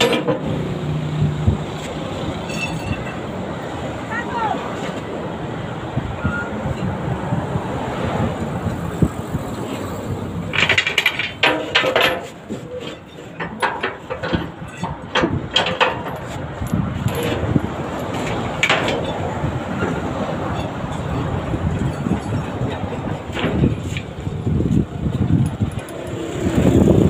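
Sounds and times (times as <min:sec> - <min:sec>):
metal chain clinking: 0:02.4 - 0:03.2, 0:10.5 - 0:19.2, 0:25.3 - 0:26.7.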